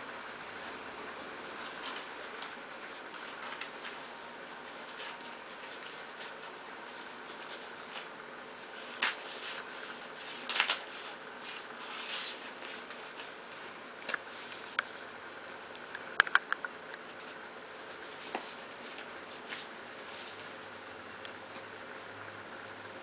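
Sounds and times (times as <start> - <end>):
sharp clicks: 15.7 - 17.0.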